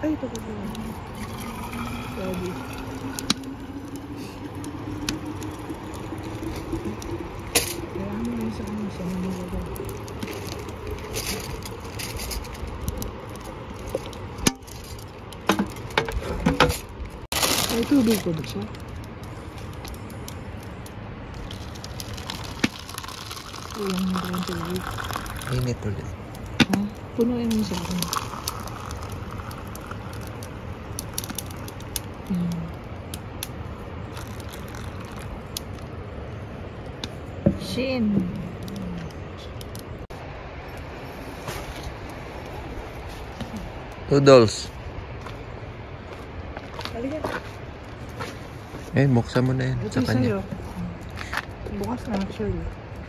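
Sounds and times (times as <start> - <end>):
low background rumble: 0.0 - 53.0
water pouring from kettle: 1.0 - 12.8, 21.4 - 26.0, 27.2 - 31.8, 34.1 - 35.4.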